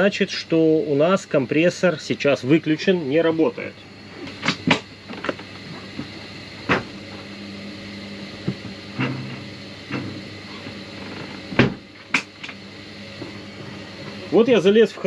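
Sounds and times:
refrigerator door thump: 11.5s - 11.9s.

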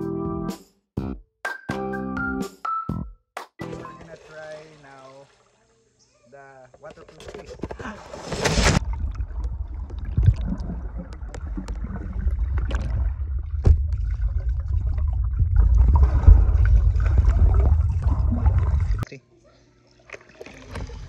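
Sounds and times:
splash into water: 3.8s - 5.5s, 8.3s - 19.0s
muffled underwater rumble: 8.7s - 19.0s.

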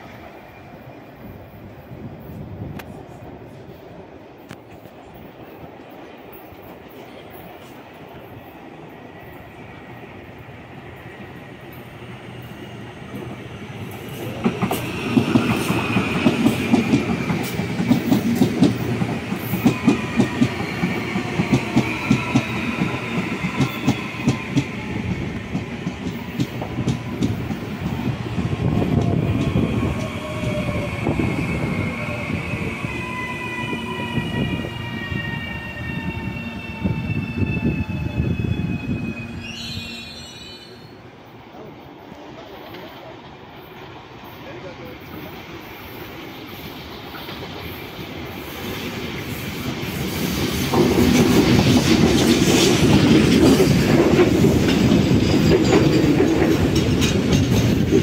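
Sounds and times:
train high whine: 0.0s - 58.0s
train wheels clacking: 11.0s - 37.6s, 45.1s - 58.0s.

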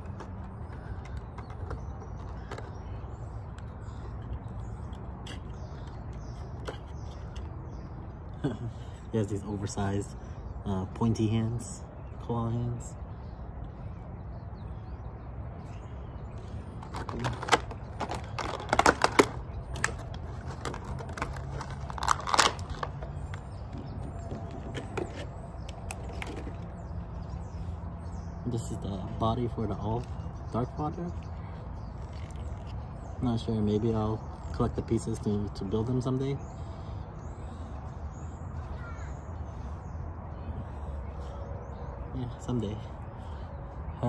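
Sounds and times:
plastic packaging crackling and clicking: 16.8s - 23.5s.

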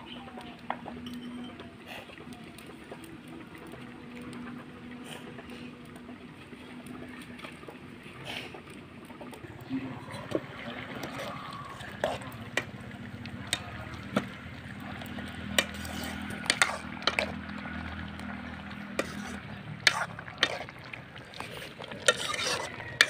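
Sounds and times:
metal ladle scraping a wok: 15.4s - 17.4s, 18.9s - 20.7s, 21.9s - 23.0s.

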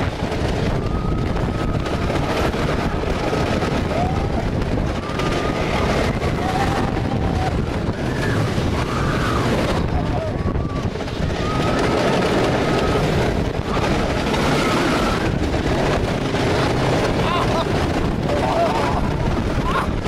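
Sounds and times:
roller coaster rumbling on track: 0.0s - 20.0s
wind buffeting microphone: 0.0s - 20.0s.

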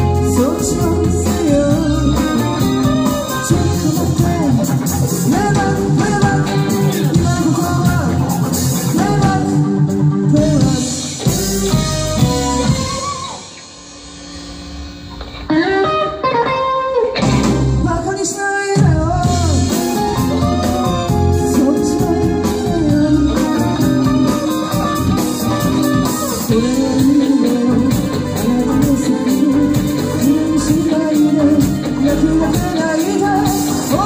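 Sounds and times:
woman singing: 0.0s - 8.2s, 17.8s - 34.0s
live rock band playing: 0.0s - 34.0s.

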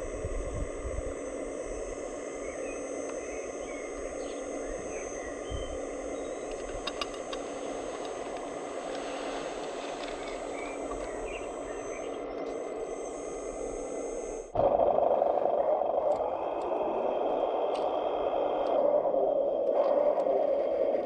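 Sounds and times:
hydraulic pump whining: 0.0s - 21.0s
sharp clicks: 1.9s - 14.6s, 17.4s - 20.6s.

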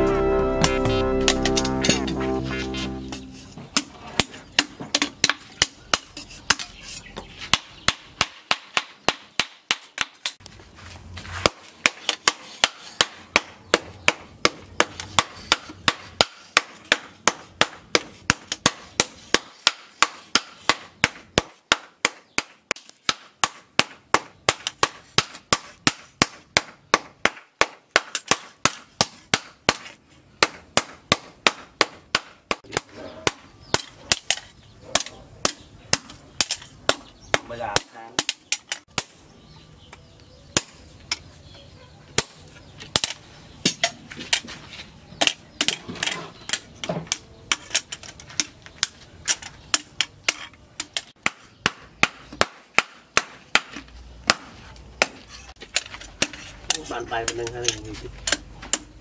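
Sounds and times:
hammer striking metal on anvil: 0.0s - 3.4s.

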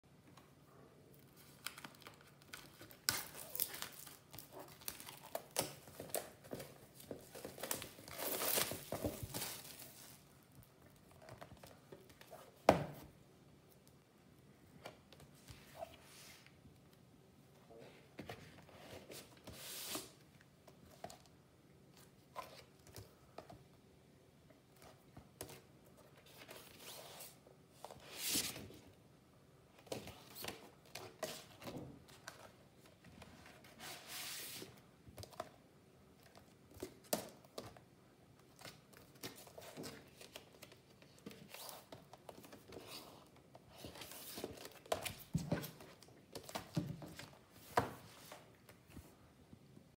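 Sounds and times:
paper sleeves rustling: 17.8s - 20.2s, 33.2s - 34.9s.

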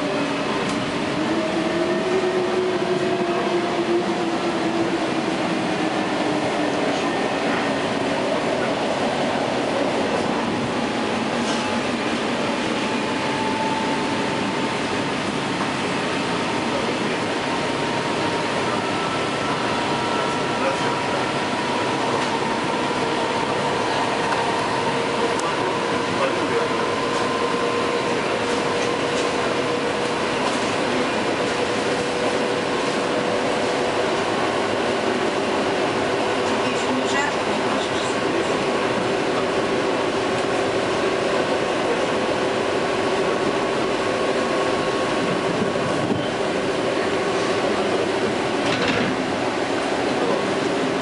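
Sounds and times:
train wheels rumbling on rails: 0.0s - 51.0s.

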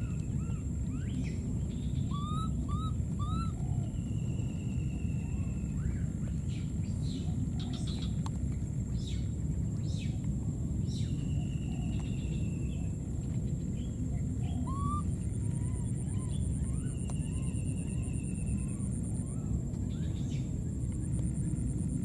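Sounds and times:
low outdoor rumble: 0.0s - 22.0s
small animals calling: 1.9s - 4.0s, 14.4s - 19.6s.

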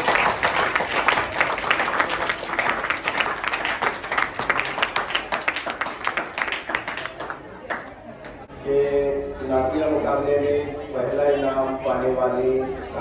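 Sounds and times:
people clapping: 0.0s - 8.5s.

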